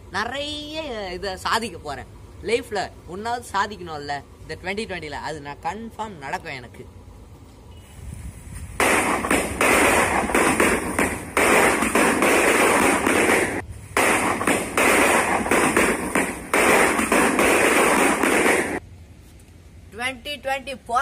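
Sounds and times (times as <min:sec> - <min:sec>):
firecrackers crackling: 0:08.6 - 0:18.8.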